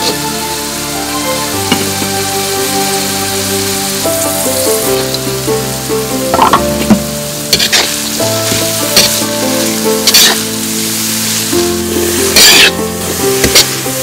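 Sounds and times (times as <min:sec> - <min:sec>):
vegetables sizzling in a wok: 0:00.0 - 0:14.0
spoon scraping a pan: 0:06.3 - 0:11.1, 0:11.9 - 0:13.8.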